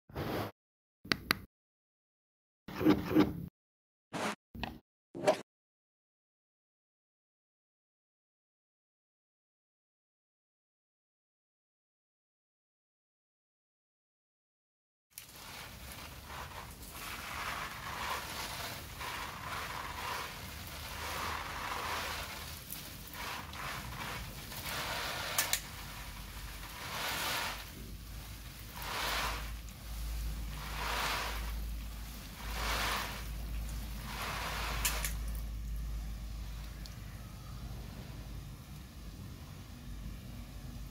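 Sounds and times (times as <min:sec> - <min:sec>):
water spray hissing on leaves: 0:15.2 - 0:36.9.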